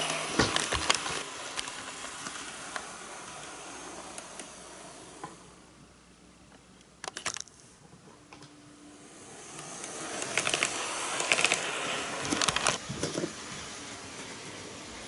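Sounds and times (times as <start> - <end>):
model train rolling hiss: 0.0 - 5.7, 8.8 - 15.0.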